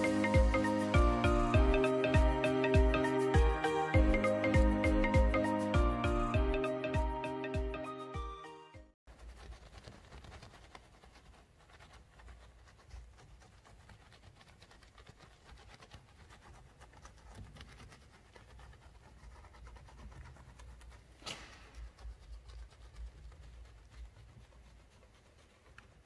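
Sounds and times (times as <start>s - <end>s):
brush scrubbing car grille: 9.1s - 26.0s.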